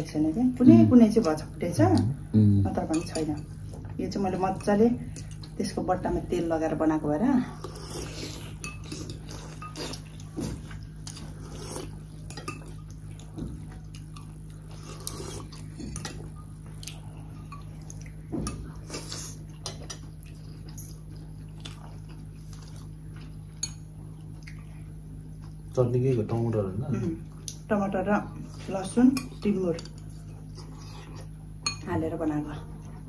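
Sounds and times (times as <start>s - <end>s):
steady low hum: 0.0s - 33.0s
people chewing: 7.4s - 27.6s, 28.4s - 31.5s.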